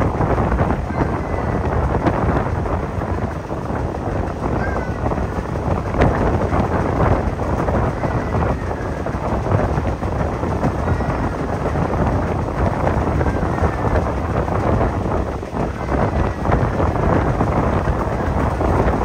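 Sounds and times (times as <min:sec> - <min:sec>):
train wheels rumbling on rails: 0:00.0 - 0:19.0
wind buffeting microphone: 0:00.0 - 0:19.0.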